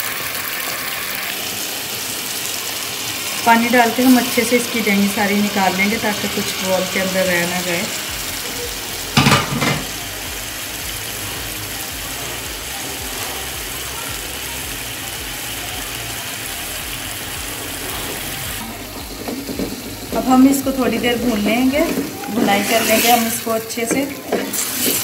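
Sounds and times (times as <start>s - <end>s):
food sizzling in a pot: 0.0s - 25.0s
spatula stirring and scraping: 17.6s - 25.0s.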